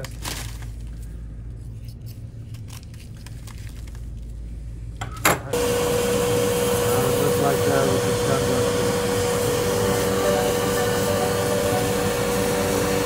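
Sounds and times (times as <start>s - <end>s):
low hum: 4.5s - 13.0s
machine whine with rushing noise: 5.6s - 13.0s.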